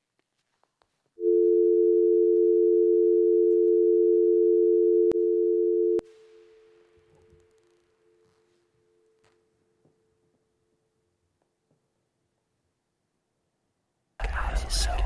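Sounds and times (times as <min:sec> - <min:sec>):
telephone dial tone: 0:01.2 - 0:06.0.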